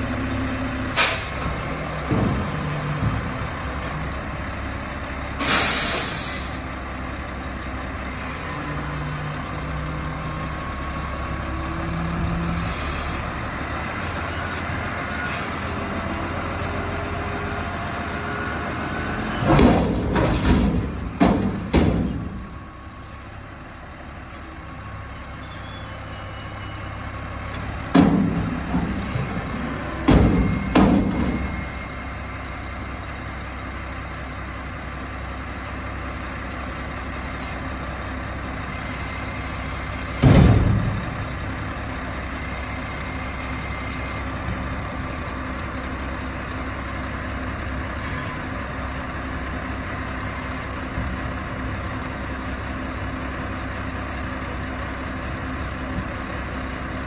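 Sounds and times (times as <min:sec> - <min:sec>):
garbage truck engine and hydraulics: 0:00.0 - 0:57.0
loud metal bangs: 0:19.4 - 0:22.6, 0:29.9 - 0:31.6, 0:40.2 - 0:41.2.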